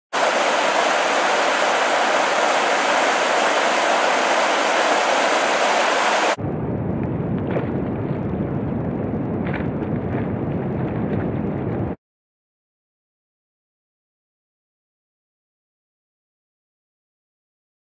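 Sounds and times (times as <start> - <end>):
river rapids rushing over boulders: 0.2 - 6.4
wind buffeting microphone: 0.2 - 12.0.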